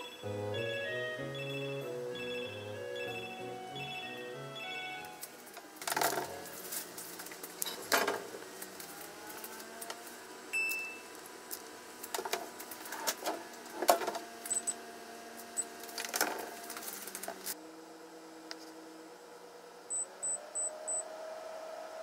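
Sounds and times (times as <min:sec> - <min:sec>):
short high-pitched beeps: 0:00.0 - 0:05.2.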